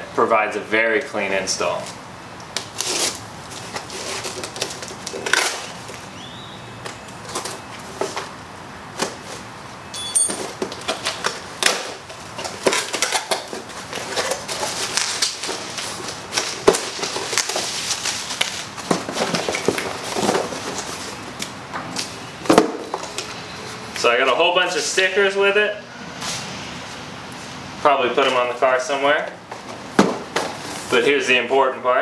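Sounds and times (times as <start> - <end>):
packing tape tearing: 2.6 - 6.0, 10.4 - 22.2
cardboard flaps rustling: 10.4 - 21.4.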